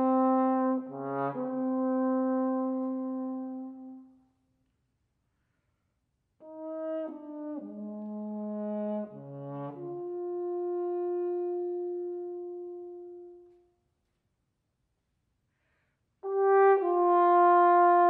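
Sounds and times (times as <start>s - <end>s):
solo french horn: 0.0s - 4.4s, 6.4s - 13.9s, 16.2s - 18.0s.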